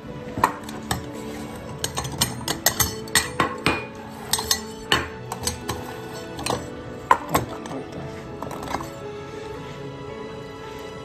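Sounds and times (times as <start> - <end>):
metal bowls clinking on wood: 0.4 - 9.0.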